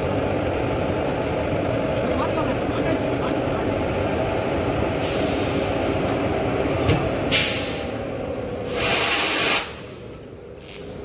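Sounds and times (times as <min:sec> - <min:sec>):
electric locomotive hum: 0:00.0 - 0:11.0
air brake hose hissing: 0:07.3 - 0:08.0, 0:08.6 - 0:11.0.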